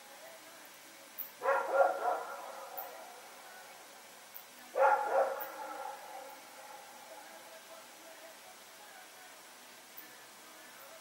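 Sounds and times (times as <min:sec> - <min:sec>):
dog barking: 0:01.4 - 0:02.9, 0:04.8 - 0:06.9.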